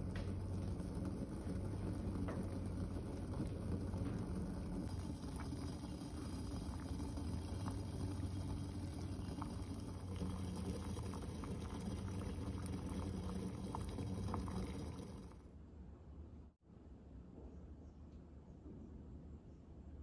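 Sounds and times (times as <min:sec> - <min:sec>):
water bubbling and popping: 0:00.0 - 0:15.4
low steady hum: 0:00.0 - 0:20.0.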